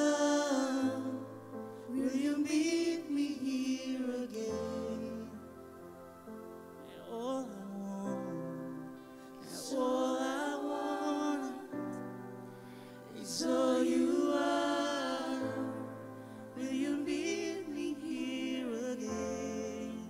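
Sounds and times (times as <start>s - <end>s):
man singing into microphone: 0.0s - 1.3s, 1.9s - 5.5s, 6.9s - 8.8s, 16.6s - 20.0s
sustained backing chords: 0.0s - 20.0s.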